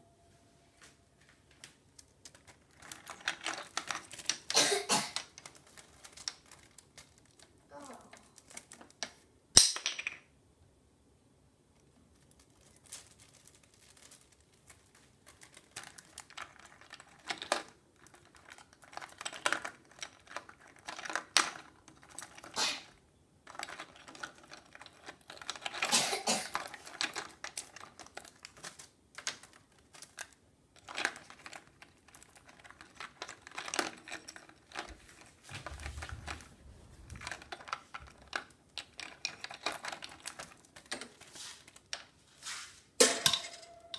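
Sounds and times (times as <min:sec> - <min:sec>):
plastic caps clicking and clattering: 0:02.0 - 0:07.5, 0:08.1 - 0:10.3, 0:15.3 - 0:22.9, 0:23.5 - 0:42.2, 0:43.0 - 0:43.9.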